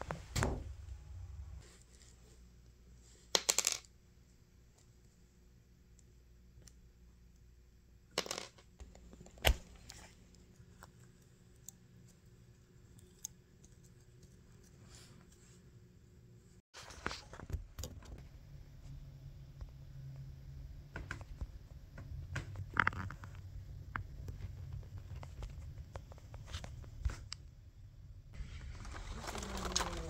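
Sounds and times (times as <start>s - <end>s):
small handling noises: 21.0s - 27.6s.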